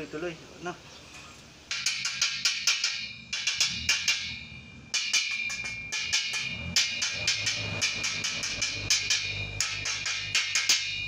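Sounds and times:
stick welding crackling: 0:01.2 - 0:11.0
chipping hammer tapping metal: 0:05.0 - 0:11.0.

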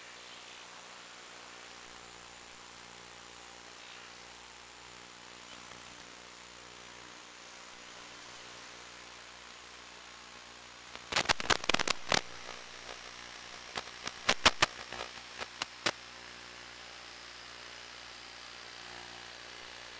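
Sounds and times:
faint hum: 0:00.0 - 0:19.9
static hiss: 0:00.0 - 0:19.9
sharp crackling clicks: 0:10.9 - 0:16.0.

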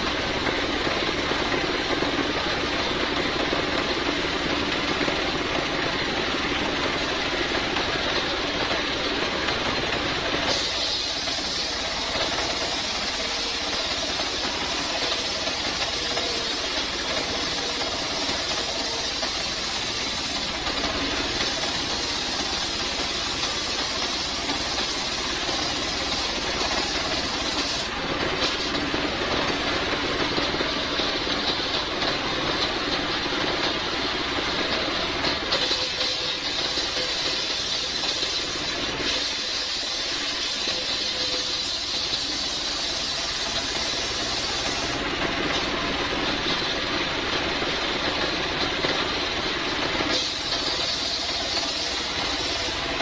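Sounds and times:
saw blade hissing through wood: 0:10.5 - 0:28.8, 0:35.6 - 0:45.0, 0:50.1 - 0:53.0.

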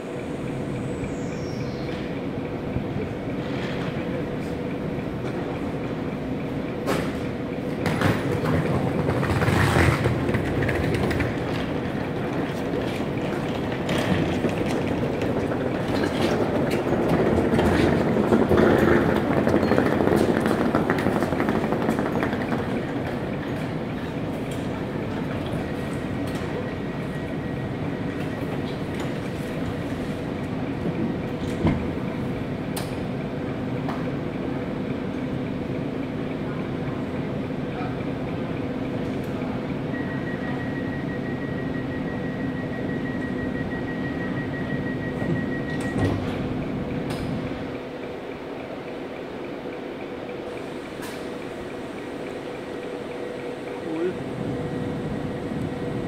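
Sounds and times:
train hum: 0:00.0 - 0:56.0
train rumble: 0:00.0 - 0:56.0.

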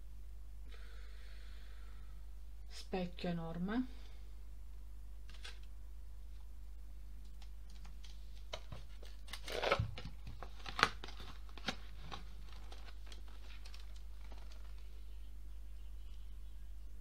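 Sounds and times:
cardboard packaging rustling: 0:05.2 - 0:05.7, 0:07.7 - 0:15.0.

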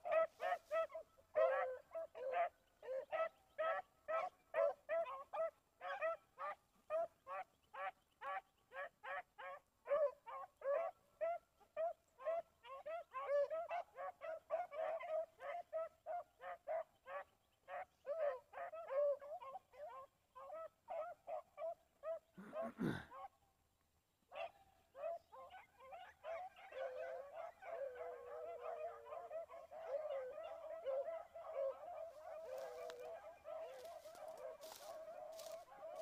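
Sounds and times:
hounds baying: 0:00.0 - 0:23.3, 0:24.3 - 0:36.0.

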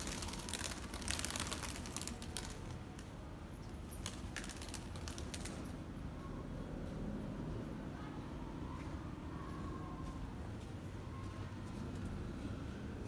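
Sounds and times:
pigeon wings clapping: 0:00.0 - 0:02.8, 0:04.0 - 0:05.7.

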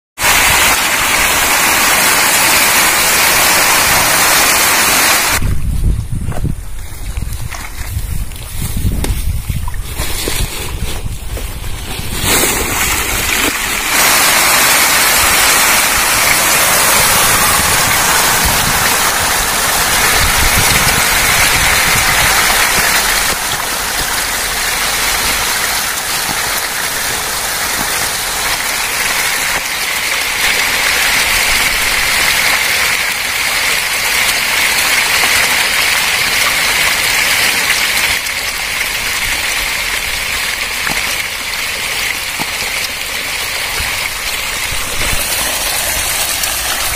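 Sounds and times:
fish thrashing and splashing: 0:09.4 - 0:32.0.

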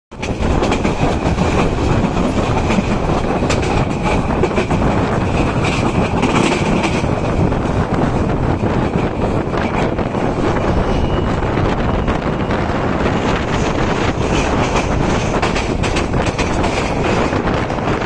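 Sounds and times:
train wheels rumbling: 0:00.1 - 0:18.0
clicks at rail joints: 0:00.2 - 0:07.1.

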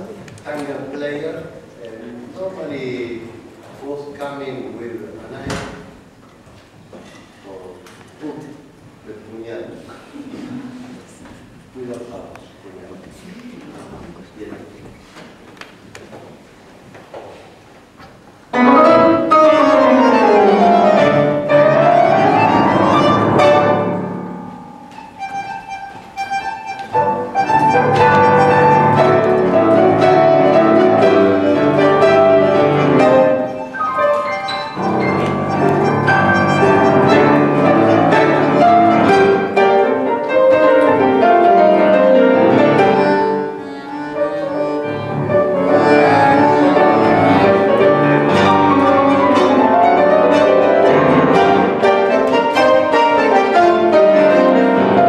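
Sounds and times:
piano: 0:18.2 - 0:55.0
bandoneon: 0:18.5 - 0:55.0.

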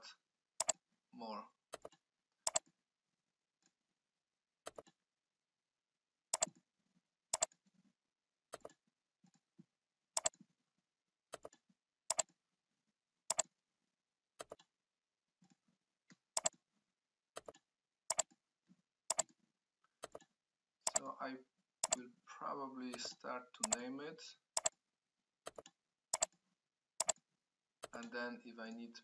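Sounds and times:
computer mouse clicking: 0:00.6 - 0:00.8, 0:01.7 - 0:02.7, 0:04.7 - 0:05.0, 0:06.3 - 0:06.6, 0:07.3 - 0:07.6, 0:08.5 - 0:08.8, 0:10.2 - 0:10.4, 0:11.3 - 0:12.4, 0:13.3 - 0:13.5, 0:14.4 - 0:14.7, 0:16.4 - 0:16.6, 0:17.4 - 0:18.4, 0:19.1 - 0:19.4, 0:20.0 - 0:20.3, 0:20.9 - 0:21.1, 0:22.9 - 0:23.9, 0:24.6 - 0:24.8, 0:25.5 - 0:26.4, 0:27.0 - 0:27.2.

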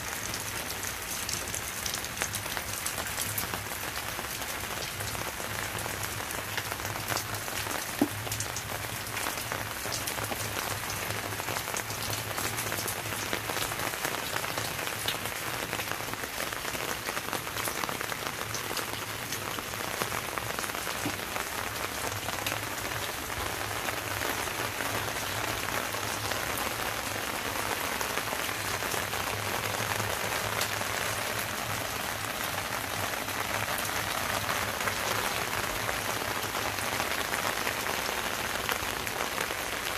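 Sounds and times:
rain on plants: 0:00.0 - 0:39.9.

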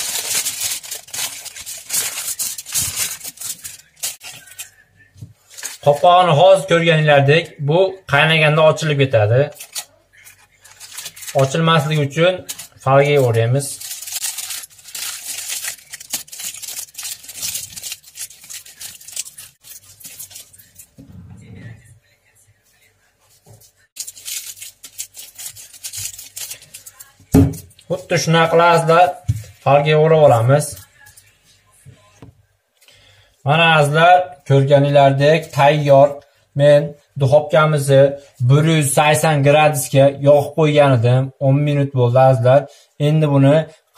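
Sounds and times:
sheet material crinkling and rustling: 0:00.0 - 0:04.8, 0:05.4 - 0:06.2, 0:09.5 - 0:21.0, 0:23.5 - 0:27.3.

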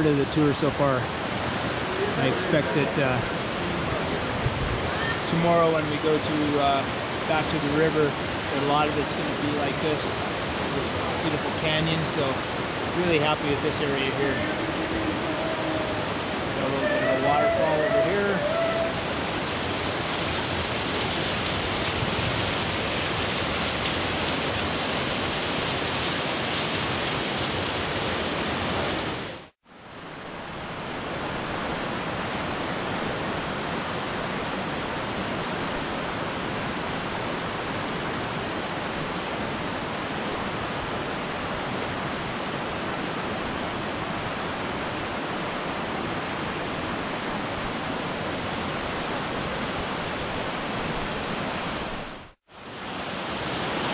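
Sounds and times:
river running over stones: 0:00.0 - 0:53.9
waterfall rushing into pool: 0:00.0 - 0:53.9.

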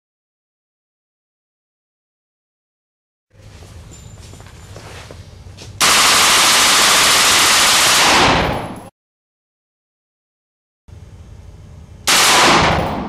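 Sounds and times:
rifle rapid fire: 0:05.8 - 0:08.9, 0:12.1 - 0:13.0.

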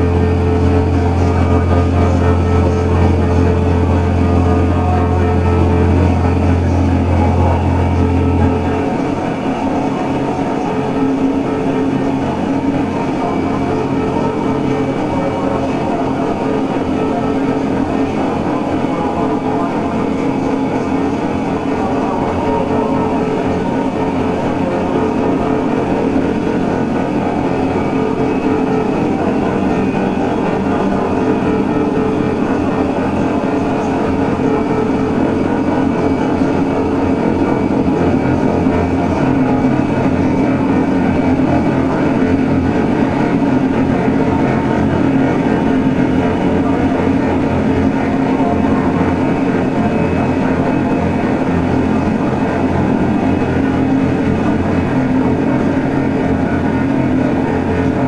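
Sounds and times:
electronic drone noise music: 0:00.0 - 0:58.0.

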